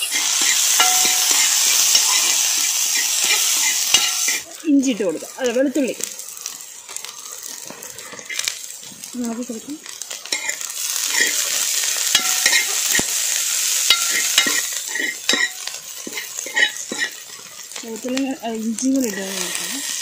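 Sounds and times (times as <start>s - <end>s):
stirring scraping metal pan: 0.0s - 4.4s, 10.2s - 18.1s, 18.8s - 20.0s
food sizzling in oil: 0.0s - 20.0s.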